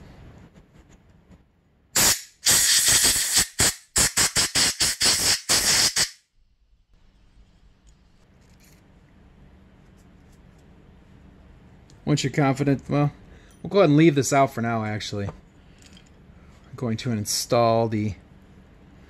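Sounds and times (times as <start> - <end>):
aerosol spray hissing: 2.0 - 6.2.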